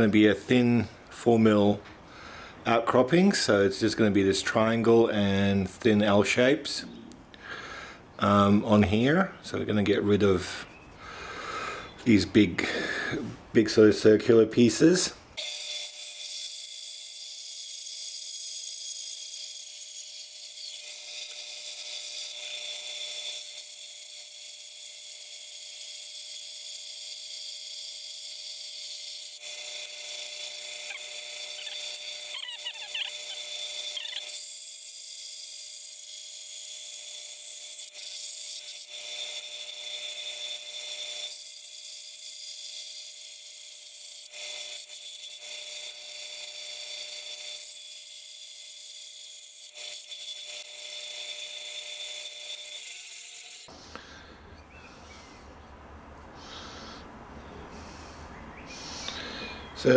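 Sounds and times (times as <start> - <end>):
band saw whining: 25.1 - 48.3.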